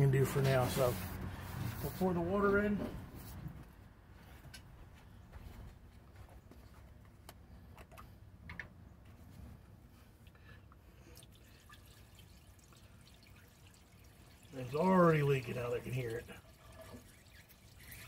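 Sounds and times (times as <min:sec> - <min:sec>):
water pouring: 0:11.1 - 0:18.0.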